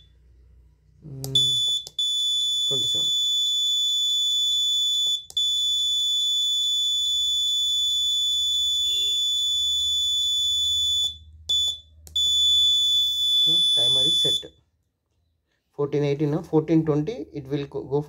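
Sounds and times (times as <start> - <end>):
high-pitched alarm buzzer tone: 1.3 - 14.5.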